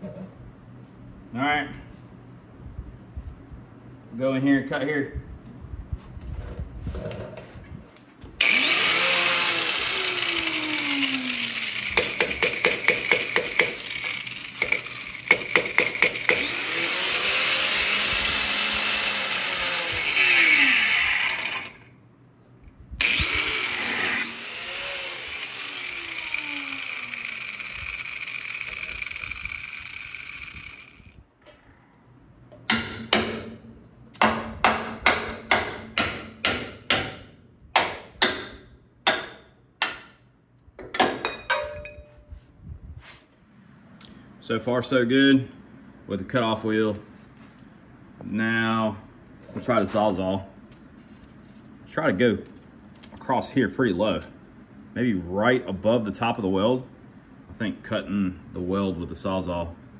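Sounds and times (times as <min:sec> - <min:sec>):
angle grinder cutting steel: 0:08.4 - 0:21.9, 0:23.0 - 0:31.2
sharp knocks on metal: 0:32.7 - 0:33.6, 0:34.2 - 0:40.2, 0:40.8 - 0:41.9.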